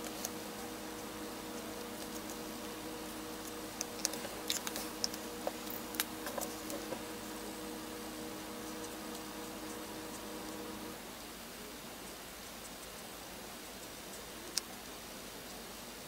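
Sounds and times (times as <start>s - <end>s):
markers clicking and tapping: 0.0s - 10.9s
steady low hum: 0.0s - 11.7s.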